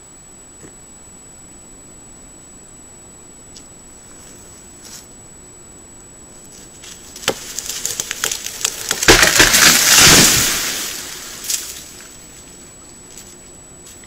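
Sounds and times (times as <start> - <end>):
tree cracking and splintering: 6.8 - 12.1
tree crashing to the ground: 6.8 - 12.1.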